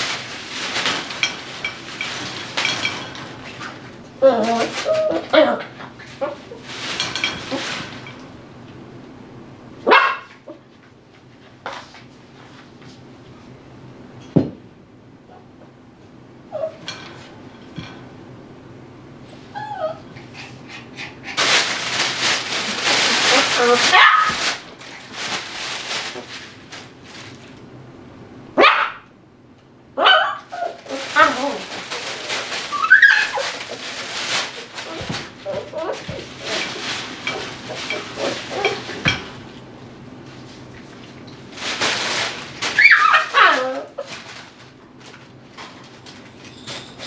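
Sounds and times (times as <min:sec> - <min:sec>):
rustling: 0:00.0 - 0:08.7, 0:19.4 - 0:27.7, 0:30.4 - 0:47.0
puppy barking: 0:09.8 - 0:10.3, 0:23.9 - 0:24.4, 0:28.6 - 0:29.1, 0:30.0 - 0:31.3.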